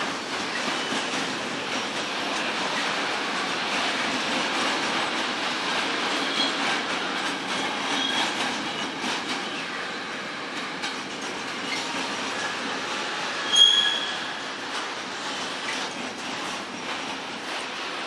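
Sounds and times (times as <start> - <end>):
train wheels rumbling on rail: 0.0 - 18.0
high wheel squeals: 13.4 - 14.4.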